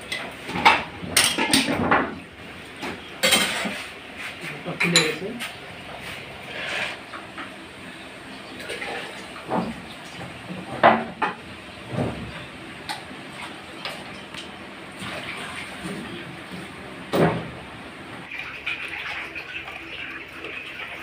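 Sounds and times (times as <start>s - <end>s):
water trickling: 18.3s - 21.0s.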